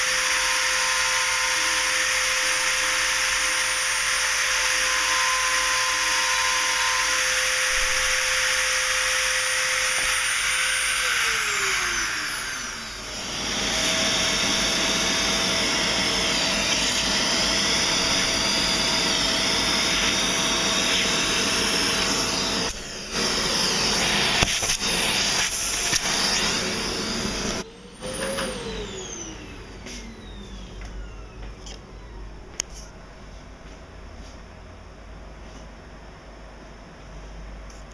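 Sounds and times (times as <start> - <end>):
vacuum cleaner rushing: 5.3 - 31.4.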